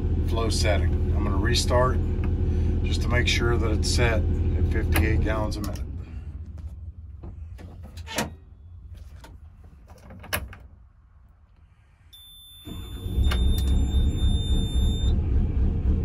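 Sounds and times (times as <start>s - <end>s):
excavator diesel engine: 0.0s - 9.4s, 12.7s - 16.0s.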